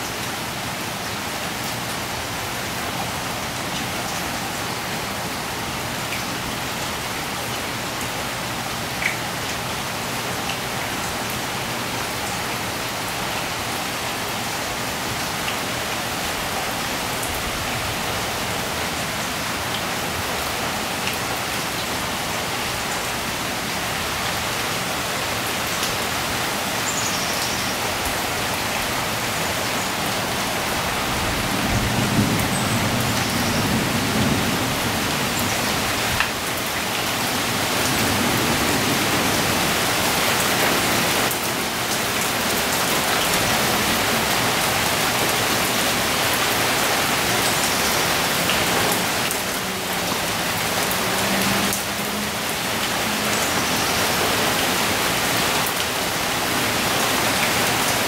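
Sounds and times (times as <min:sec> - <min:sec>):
heavy rain pouring: 0:00.0 - 0:58.0
low rumble of thunder: 0:31.6 - 0:34.9.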